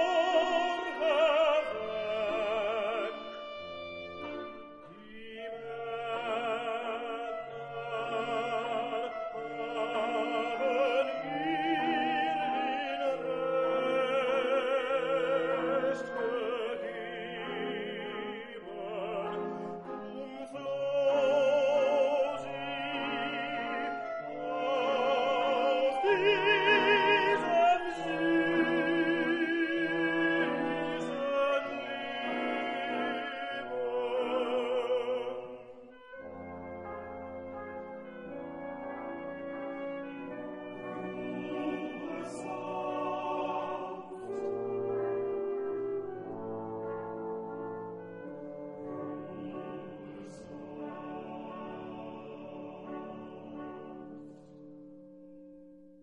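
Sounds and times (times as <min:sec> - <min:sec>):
orchestral accompaniment: 0:00.0 - 0:55.5
operatic voice singing: 0:04.9 - 0:35.9, 0:40.7 - 0:46.0, 0:48.7 - 0:54.2.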